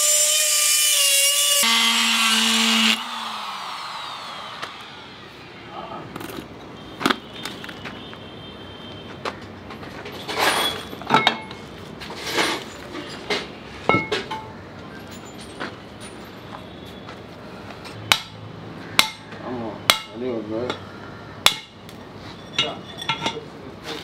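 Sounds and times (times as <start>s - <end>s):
metal tools clinking: 10.0s - 16.6s, 22.3s - 23.5s.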